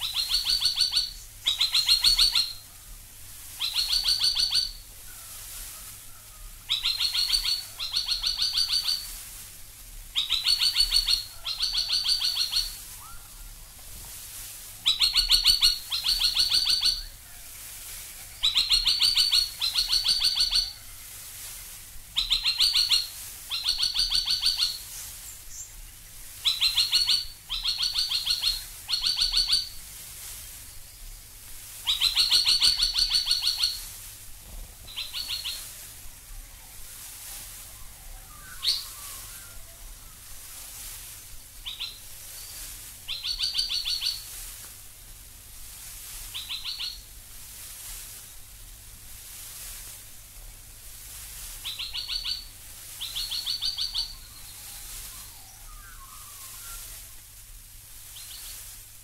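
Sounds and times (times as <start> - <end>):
bird calling sharp repeated notes: 0.0 - 2.7, 3.6 - 4.9, 6.7 - 9.2, 10.2 - 13.4, 14.8 - 17.2, 18.4 - 20.8, 22.2 - 25.7, 26.4 - 29.8, 31.8 - 34.0, 34.9 - 35.9, 37.7 - 40.3, 41.6 - 44.4, 46.3 - 47.1, 51.6 - 57.2.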